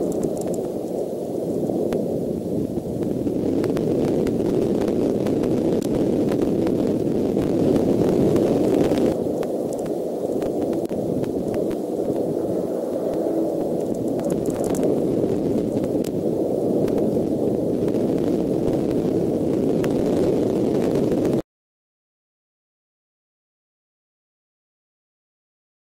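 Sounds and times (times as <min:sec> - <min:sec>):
faint scattered ticks: 0:00.0 - 0:02.1, 0:03.0 - 0:19.1
low rushing noise: 0:00.0 - 0:21.4.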